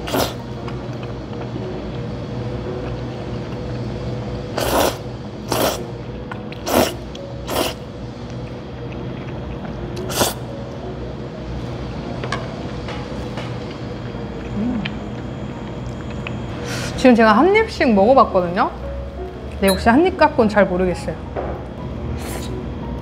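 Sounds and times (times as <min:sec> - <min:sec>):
loud noodle slurps: 0:00.0 - 0:00.4, 0:04.6 - 0:05.8, 0:06.6 - 0:07.8, 0:10.1 - 0:10.4
low background hum: 0:00.0 - 0:23.0.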